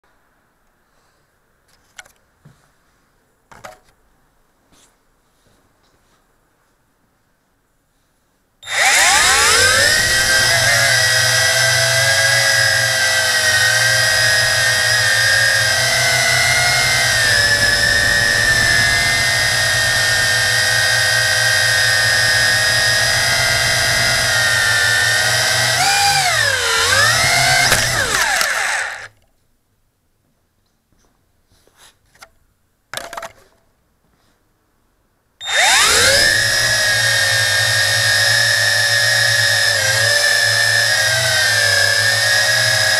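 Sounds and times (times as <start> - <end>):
drone motors whining: 8.6 - 29.1, 35.4 - 42.9.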